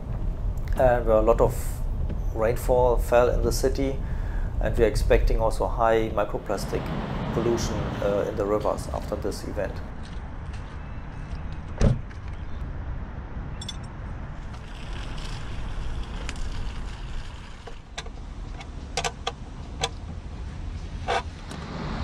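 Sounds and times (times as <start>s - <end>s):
steady low rumble: 0.0s - 11.8s
car door shutting: 11.8s - 12.1s.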